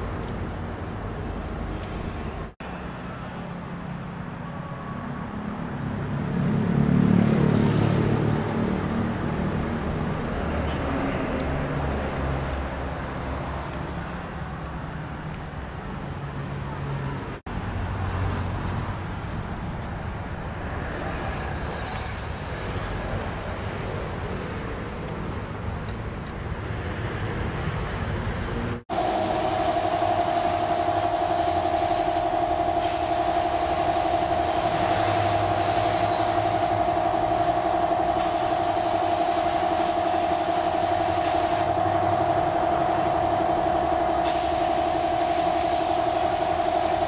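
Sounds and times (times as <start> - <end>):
road traffic noise: 0.0 - 47.0
vehicle engine running: 5.4 - 16.2, 28.8 - 47.0.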